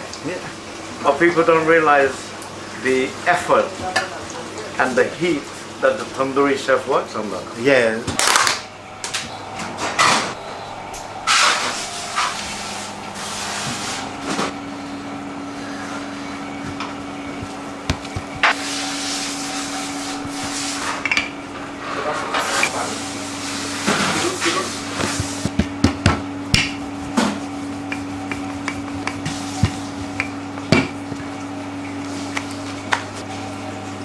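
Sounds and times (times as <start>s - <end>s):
higher machine hum: 0.0s - 34.0s
kitchen machinery humming: 0.0s - 34.0s
wooden rolling pin: 16.6s - 18.6s, 24.9s - 31.2s
knocks on steel worktop: 25.1s - 27.4s, 30.7s - 31.0s.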